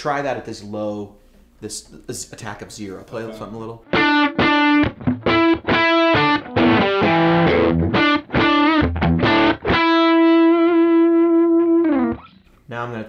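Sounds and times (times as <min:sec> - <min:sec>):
electric guitar picked notes: 0:03.8 - 0:12.4.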